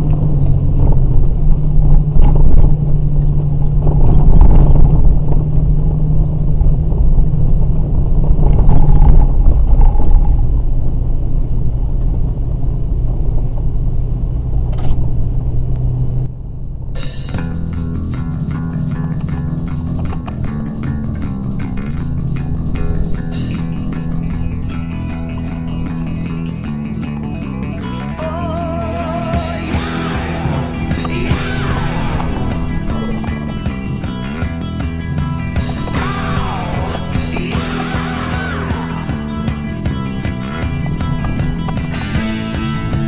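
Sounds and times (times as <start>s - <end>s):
vehicle engine and road noise: 0.0s - 43.0s
rock music with guitar: 16.8s - 43.0s.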